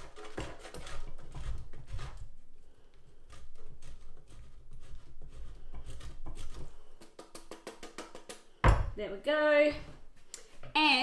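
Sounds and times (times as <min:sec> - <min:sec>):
cheese scraping on box grater: 0:00.0 - 0:02.4, 0:03.1 - 0:07.0.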